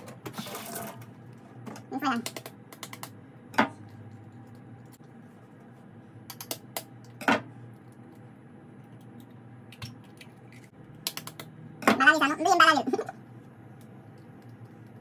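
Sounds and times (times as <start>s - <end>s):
faint steady hum: 0.0s - 15.0s
eggshells being tapped and cracked: 2.2s - 3.2s, 8.9s - 11.6s.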